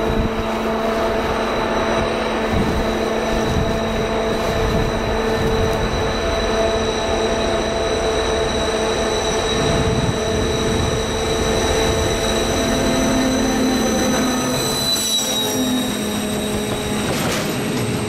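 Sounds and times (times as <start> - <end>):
diesel locomotive engine drone: 0.0 - 18.0
high whistling tones: 8.6 - 17.2.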